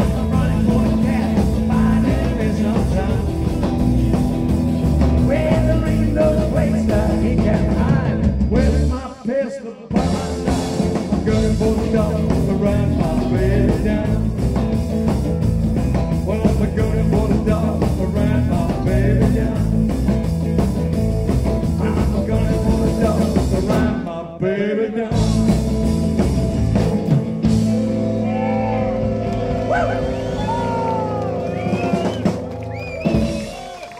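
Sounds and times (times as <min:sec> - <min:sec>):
man singing lead vocal: 0:00.0 - 0:04.2, 0:05.2 - 0:14.8, 0:15.9 - 0:20.3, 0:21.6 - 0:27.4
live rock band playing: 0:00.0 - 0:09.2, 0:09.9 - 0:24.1, 0:25.1 - 0:33.9.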